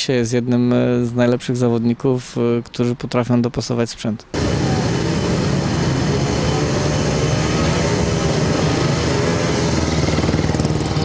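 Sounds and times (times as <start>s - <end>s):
motorcycle engine running: 4.4s - 11.0s.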